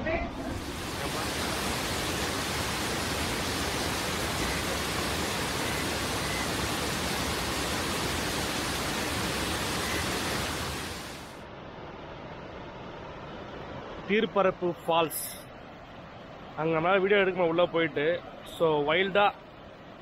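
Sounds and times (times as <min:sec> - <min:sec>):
waterfall roaring: 0:00.3 - 0:11.4.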